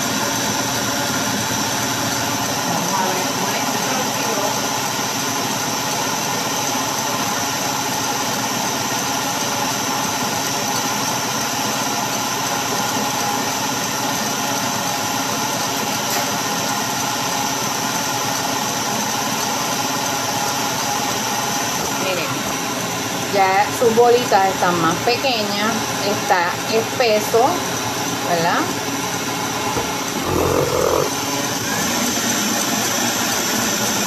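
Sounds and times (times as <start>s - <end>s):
stand mixer motor whine: 0.0s - 23.3s, 31.7s - 34.0s.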